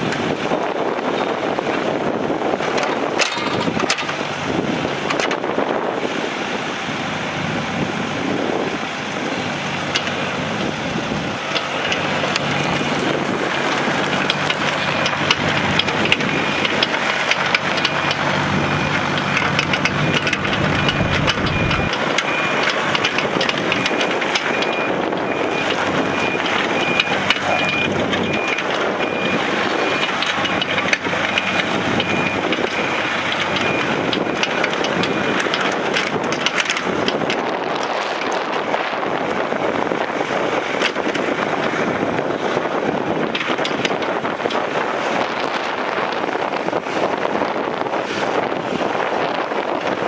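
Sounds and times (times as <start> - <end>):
diesel excavator engine running: 0.0 - 50.0
wind noise on microphone: 0.0 - 50.0
high-pitched travel alarm beeping: 15.9 - 17.0, 17.7 - 22.8, 23.6 - 34.5.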